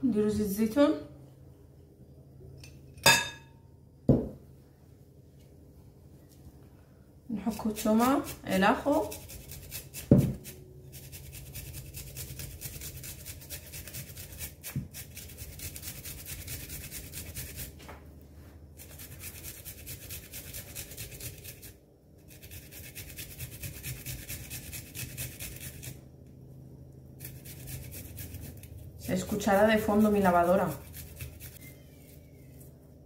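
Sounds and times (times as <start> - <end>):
garlic grated on metal grater: 7.4 - 17.8, 18.8 - 26.0, 27.2 - 31.7.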